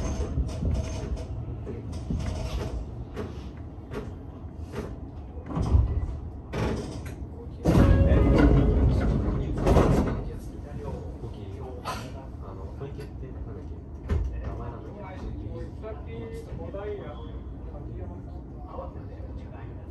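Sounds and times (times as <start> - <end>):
clicks and knocks of track: 0.0 - 10.4.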